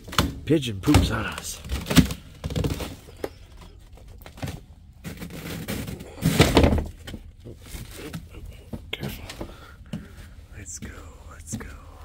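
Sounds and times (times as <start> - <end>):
footsteps knocking and scuffing: 8.1 - 11.8.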